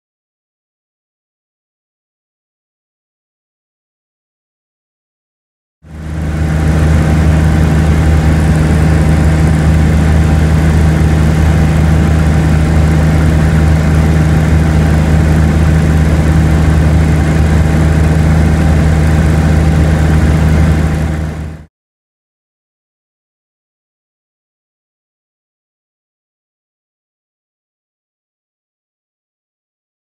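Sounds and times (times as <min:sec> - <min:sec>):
light aircraft engine droning: 0:05.9 - 0:21.7.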